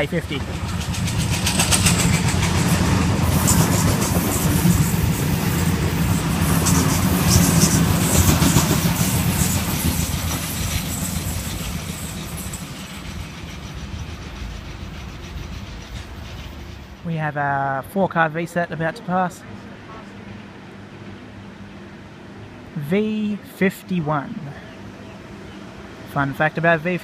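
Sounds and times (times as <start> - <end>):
train wheels rumbling on rails: 0.0 - 17.5.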